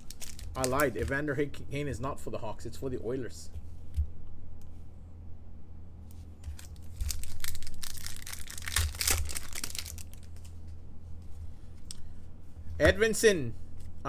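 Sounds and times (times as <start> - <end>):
foil wrapper crinkling and tearing: 0.0 - 1.2, 6.5 - 10.5.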